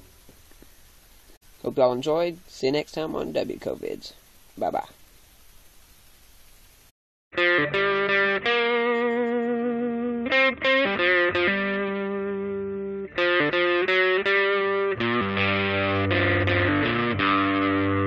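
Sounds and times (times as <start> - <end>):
distorted electric guitar chords: 7.3 - 18.0.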